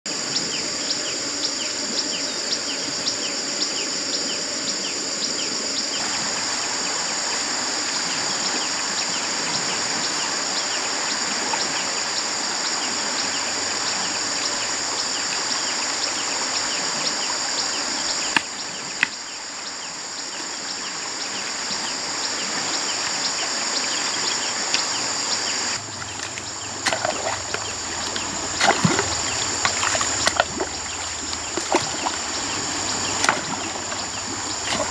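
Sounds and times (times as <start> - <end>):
stick striking muddy water: 25.8 - 34.9.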